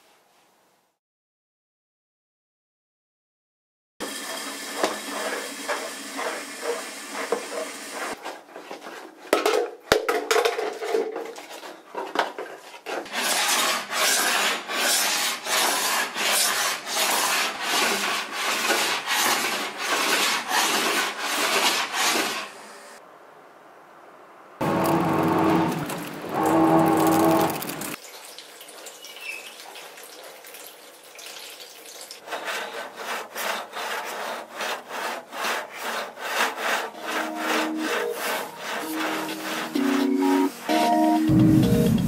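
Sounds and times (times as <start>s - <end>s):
rough scraping strokes: 24.6s - 28.0s, 32.2s - 40.7s.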